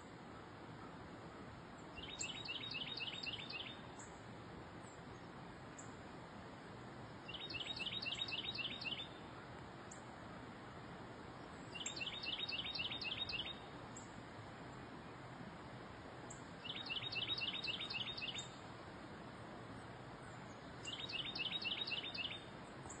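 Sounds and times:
low outdoor hiss: 0.0s - 23.0s
songbird singing: 1.7s - 6.0s, 6.7s - 15.2s, 16.2s - 23.0s.

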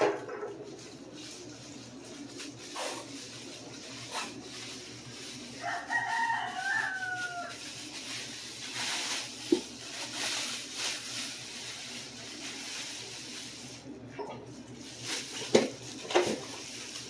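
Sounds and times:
plastic wrapping crinkling: 0.1s - 17.0s
rooster crowing: 5.6s - 7.8s.

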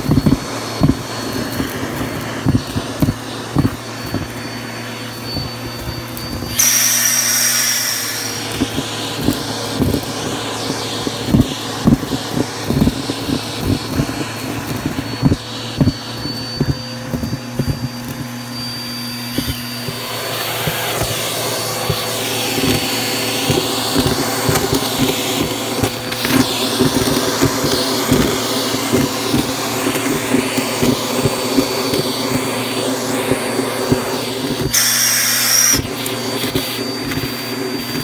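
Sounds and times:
debris rattling in vacuum hose: 0.0s - 38.0s
vacuum cleaner motor whine: 0.0s - 38.0s.

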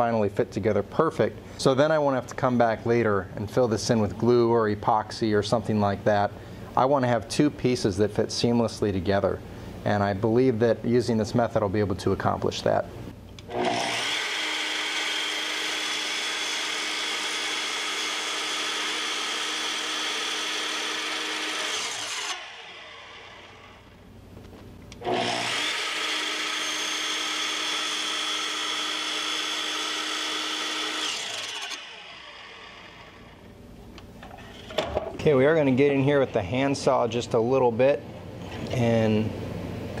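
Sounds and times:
miter saw whining: 13.5s - 24.0s, 25.0s - 33.5s
saw motor winding down: 13.5s - 24.0s, 25.0s - 33.5s.

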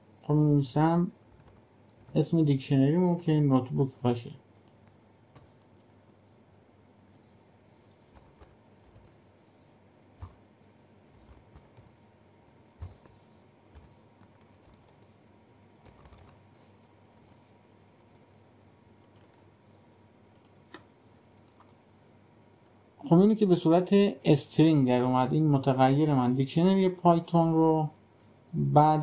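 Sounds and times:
computer keyboard keystrokes: 1.2s - 2.2s, 4.6s - 6.2s, 7.8s - 9.2s, 10.2s - 10.4s, 11.1s - 15.1s, 15.8s - 17.4s, 19.0s - 19.5s, 20.3s - 20.9s.

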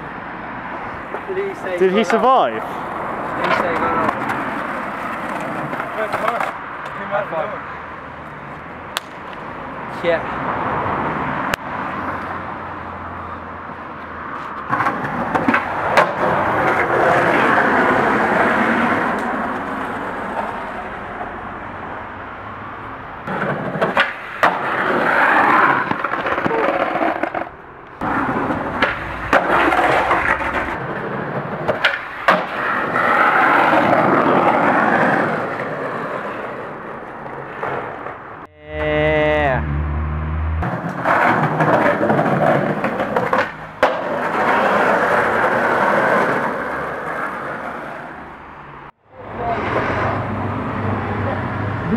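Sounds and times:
skateboard wheels rolling: 0.7s - 7.5s, 13.3s - 22.0s, 23.2s - 38.4s, 40.6s - 48.8s
skateboard clacking on ground: 3.3s - 7.1s, 8.9s - 9.4s, 14.4s - 20.8s, 23.2s - 38.2s, 40.6s - 48.2s.

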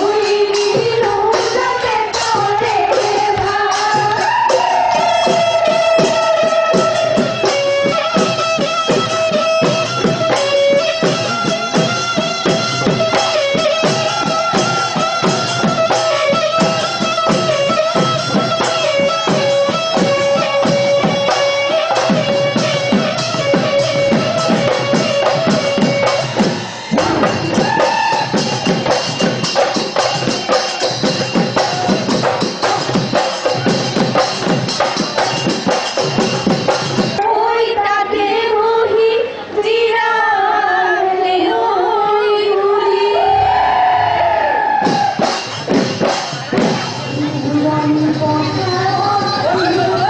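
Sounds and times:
fast dense drumming: 9.8s - 37.2s.

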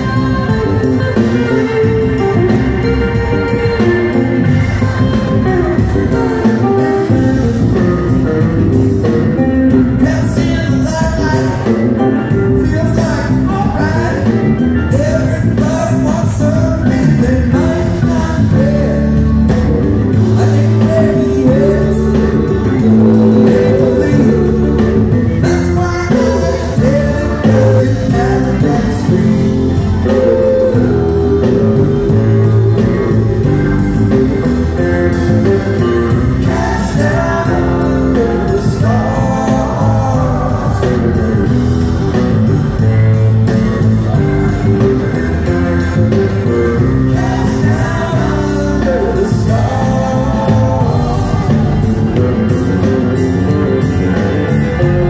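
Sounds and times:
bass: 0.0s - 55.0s
drums: 0.0s - 55.0s
electric guitar: 0.0s - 55.0s
hammond organ: 0.0s - 55.0s
people singing: 14.9s - 43.2s, 44.0s - 53.0s.

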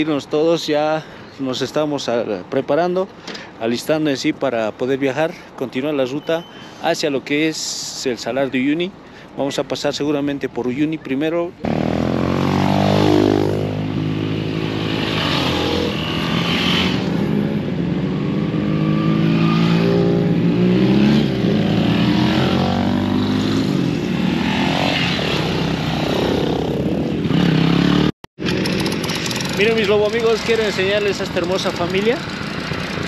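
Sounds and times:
motorcycles revving past: 11.6s - 33.0s
engine idling: 28.4s - 33.0s.

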